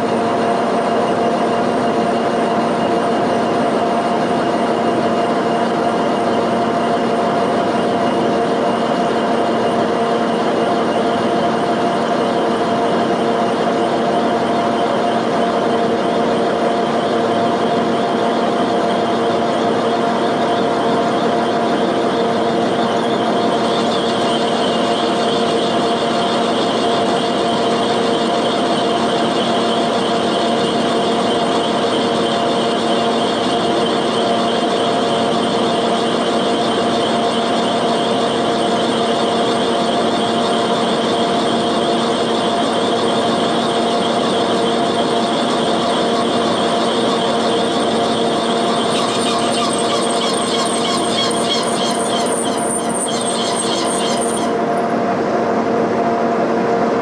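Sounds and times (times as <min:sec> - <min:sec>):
milling machine whine: 0:00.0 - 0:57.0
cutter rasping metal: 0:46.5 - 0:54.8.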